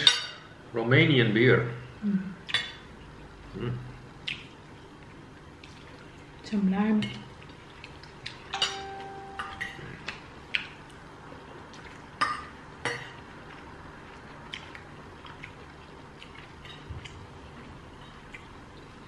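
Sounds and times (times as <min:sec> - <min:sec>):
cutlery clinking on plates: 0:08.6 - 0:09.8.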